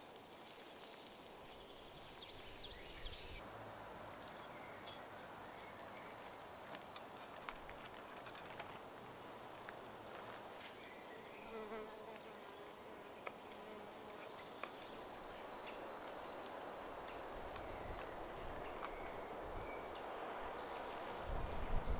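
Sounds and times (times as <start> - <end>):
insect buzzing: 11.4 - 14.3.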